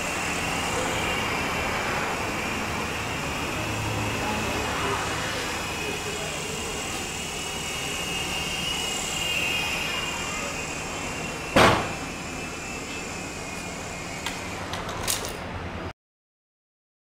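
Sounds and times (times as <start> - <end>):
small motors and propellers whining: 0.0 - 15.9
sharp knock: 11.6 - 11.9.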